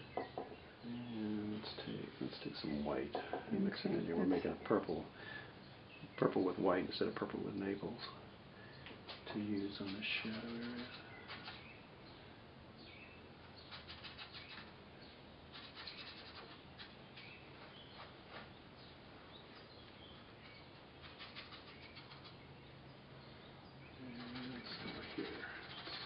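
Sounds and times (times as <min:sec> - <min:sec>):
faint bird chirps: 0:00.0 - 0:26.0.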